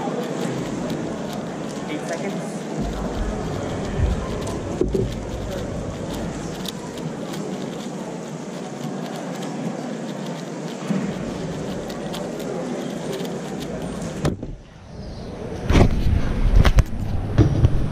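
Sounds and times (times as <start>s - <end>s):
plastic puzzle cube clicking: 0.0s - 14.3s
steady background noise: 0.0s - 17.9s.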